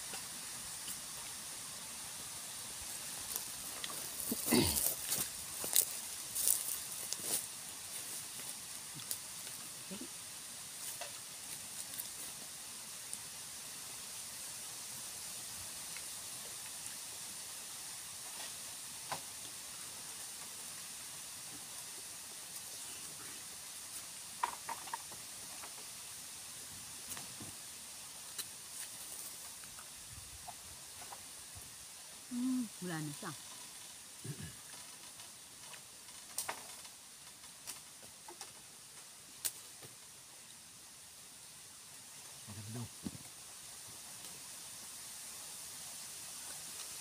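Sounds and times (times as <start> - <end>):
high-pitched hiss: 0.0 - 47.0
people eating mouth sounds: 34.2 - 34.6.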